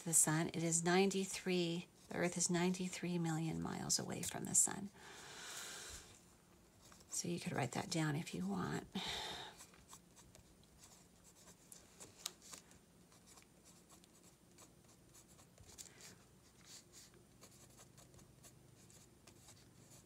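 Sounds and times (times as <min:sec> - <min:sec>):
pencil scratching on paper: 0:09.9 - 0:12.1, 0:13.1 - 0:20.0.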